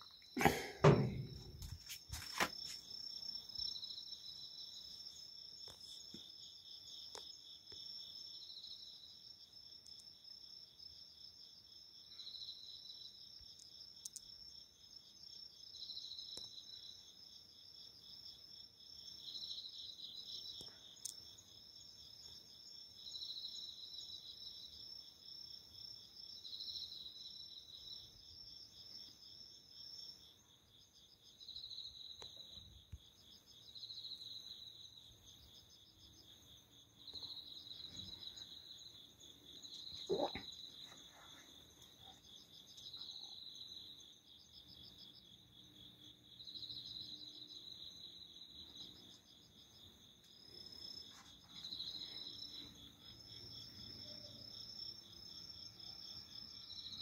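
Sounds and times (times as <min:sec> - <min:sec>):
insect chirping song: 0:00.0 - 0:57.0
insects trilling: 0:00.0 - 0:57.0
sharp knocks: 0:00.8 - 0:01.7.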